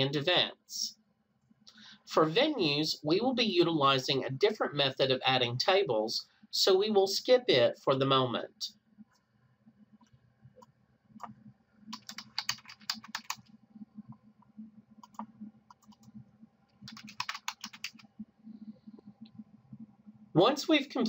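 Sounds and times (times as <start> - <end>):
typing on computer keyboard: 11.9 - 13.5, 15.0 - 16.1, 16.8 - 18.1.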